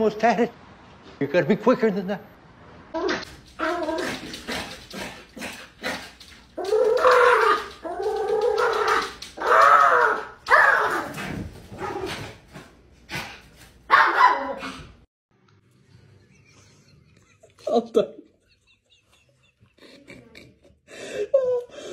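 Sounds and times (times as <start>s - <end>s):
paws clicking on a glass door: 3.2s - 11.1s.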